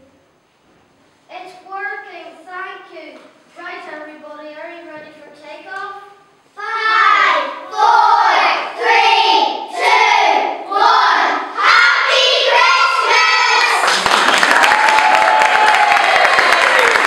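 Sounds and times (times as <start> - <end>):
children singing together: 6.6 - 13.8
audience applause: 13.6 - 17.0.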